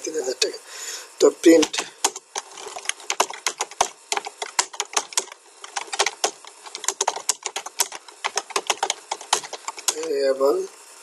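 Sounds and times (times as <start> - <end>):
typing on computer keyboard: 1.5 - 10.2.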